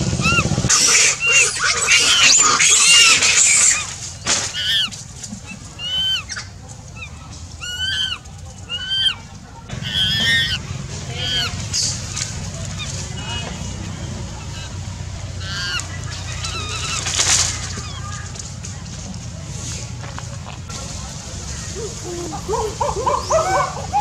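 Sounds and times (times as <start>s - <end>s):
monkey squealing: 0.0s - 18.3s, 21.8s - 24.0s.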